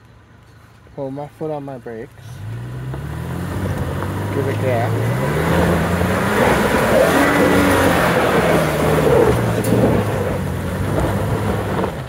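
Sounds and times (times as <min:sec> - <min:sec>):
truck engine revving hard: 0:02.3 - 0:12.0
tyres scrabbling on dirt: 0:02.4 - 0:12.0.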